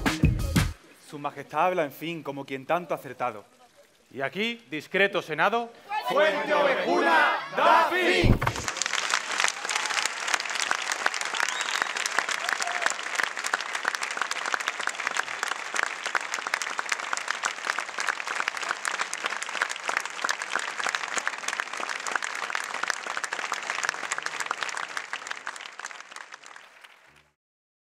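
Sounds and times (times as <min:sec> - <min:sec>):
audience applauding: 0:08.2 - 0:27.4.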